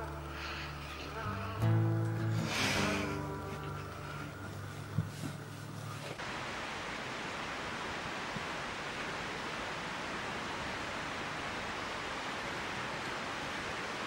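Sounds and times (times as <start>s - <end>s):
song: 0.0s - 6.0s
outdoor background hiss: 0.0s - 14.0s.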